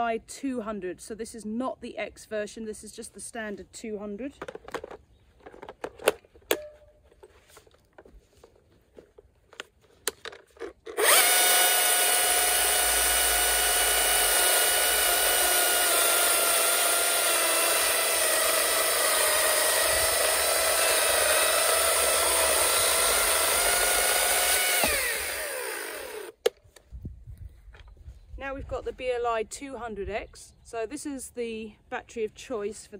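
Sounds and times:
chainsaw motor whine: 10.9s - 26.4s.

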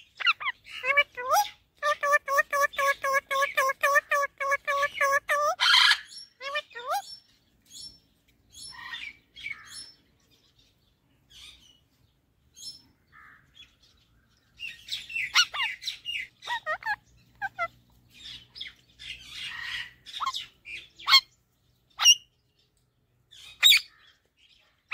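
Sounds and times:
parakeet chirping and squawking: 0.0s - 7.1s, 14.7s - 21.3s, 22.0s - 22.2s, 23.3s - 24.0s.

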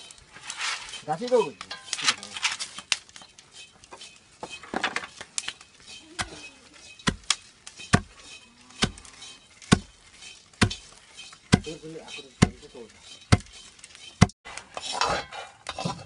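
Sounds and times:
wooden pestle pounding in mortar: 7.0s - 8.1s, 8.8s - 9.0s, 9.6s - 9.9s, 10.6s - 12.7s, 13.3s - 13.6s.

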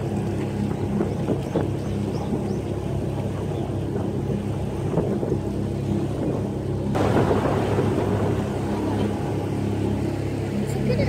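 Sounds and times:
boat engine humming: 0.0s - 11.0s
loud rushing noise: 7.0s - 10.5s.

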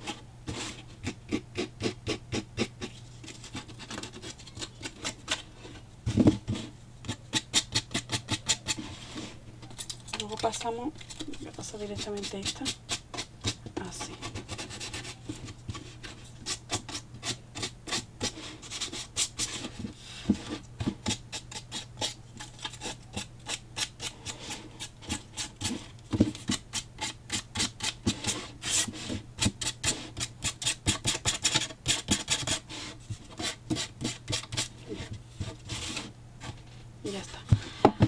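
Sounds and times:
sandpaper rubbing cardboard: 12.0s - 36.1s.

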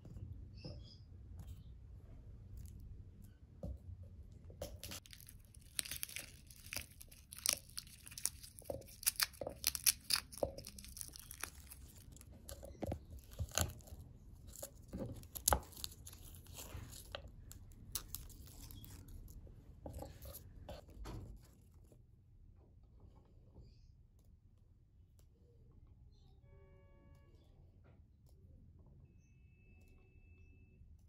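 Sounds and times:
garlic skins crackling: 4.6s - 19.4s.

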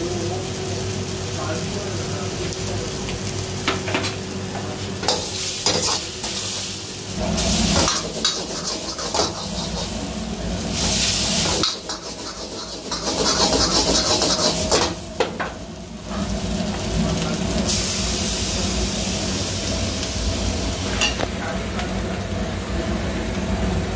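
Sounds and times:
noodles sizzling in a wok: 0.0s - 23.9s
metal ladle scraping a pan: 7.8s - 10.1s, 11.4s - 15.0s.

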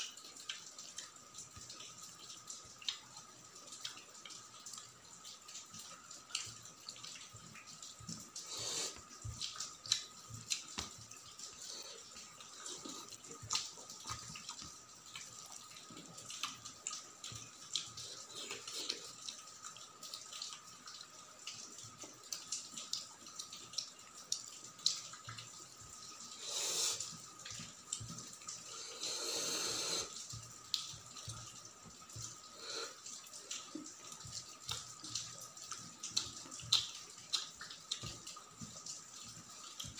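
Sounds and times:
fingers squishing wet food: 8.7s - 11.3s
smacking chewing: 8.7s - 19.3s.

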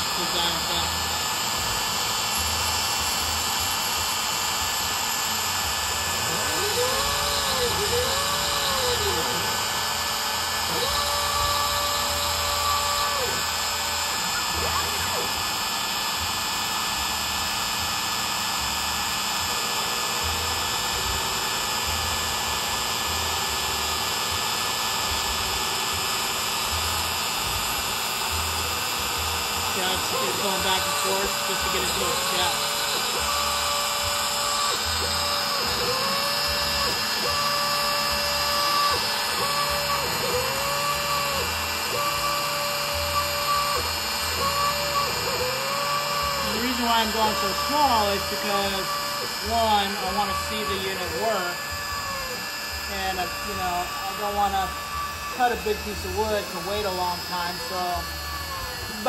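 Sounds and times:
lower drive motor whine: 0.0s - 59.0s
router spindle motor whine: 0.0s - 59.0s.

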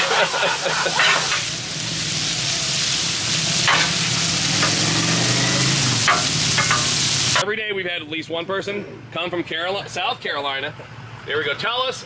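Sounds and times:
metal spatula scraping griddle: 0.0s - 1.5s, 3.5s - 7.4s
bacon sizzling on griddle: 0.0s - 7.4s.

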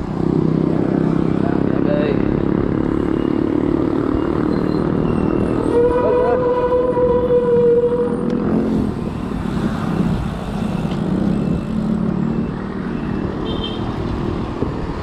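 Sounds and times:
vehicle engine humming: 0.0s - 15.0s
wind and road noise: 0.0s - 15.0s.

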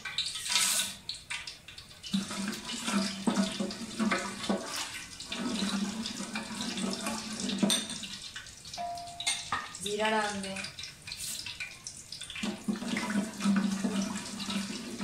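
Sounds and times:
spices sizzling in hot oil: 0.0s - 12.8s
spoon knocking on pot: 8.8s - 9.8s.

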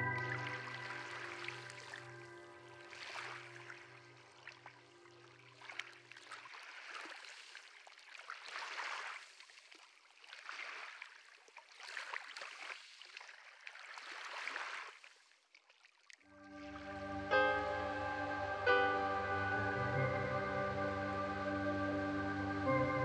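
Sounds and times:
small waves on pebble shore: 5.6s - 15.2s.

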